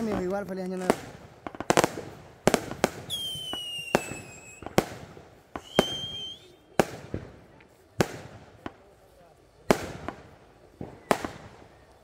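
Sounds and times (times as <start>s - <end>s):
firecrackers banging: 0.0s - 12.0s
firework whistle: 3.0s - 4.8s, 5.5s - 6.9s.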